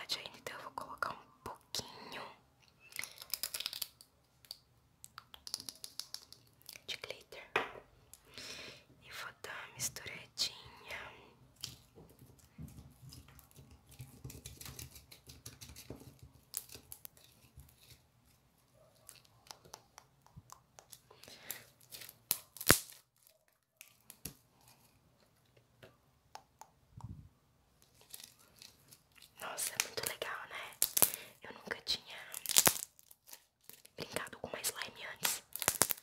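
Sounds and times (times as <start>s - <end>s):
slime squelching and popping: 35.2s - 36.0s.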